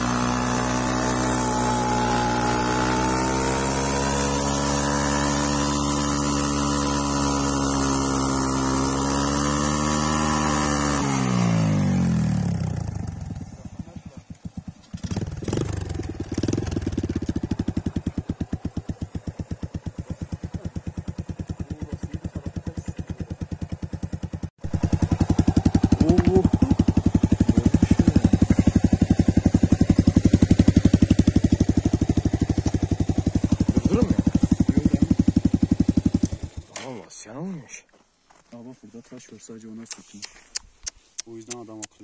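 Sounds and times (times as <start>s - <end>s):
motorcycle engine idling: 10.8s - 36.8s.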